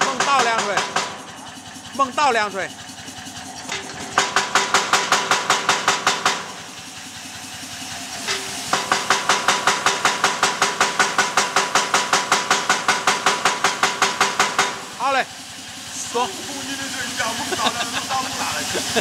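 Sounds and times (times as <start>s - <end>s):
forging hammer blows: 0.0s - 1.3s
machine hum: 0.0s - 19.0s.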